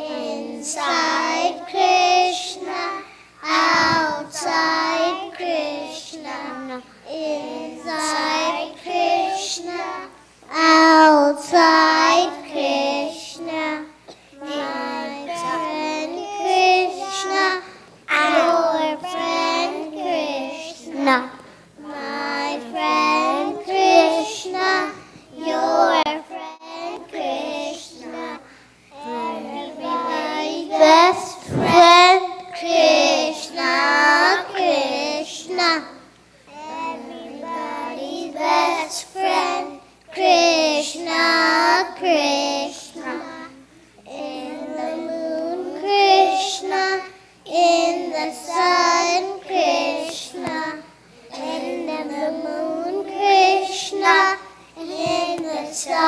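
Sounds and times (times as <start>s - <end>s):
children singing: 0.0s - 13.8s, 14.4s - 28.4s, 29.0s - 35.9s, 36.5s - 56.0s.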